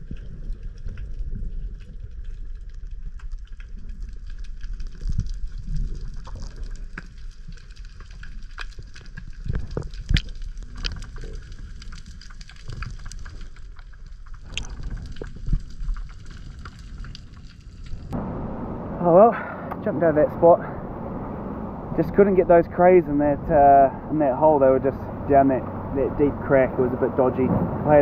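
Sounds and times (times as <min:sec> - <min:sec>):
sharp clicks and crackles: 0:00.0 - 0:18.3
underwater water rumble: 0:00.0 - 0:28.0.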